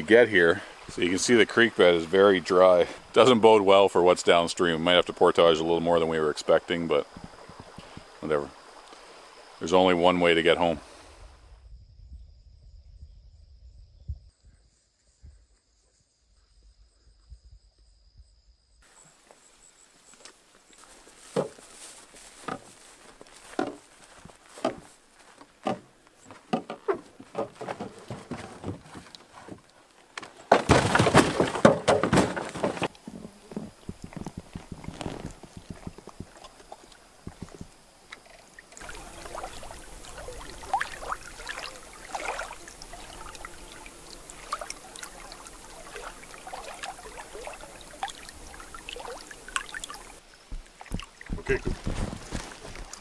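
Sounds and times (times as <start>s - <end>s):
rushing water: 0.0s - 11.2s, 20.3s - 53.0s
water splashing and pouring: 30.5s - 53.0s.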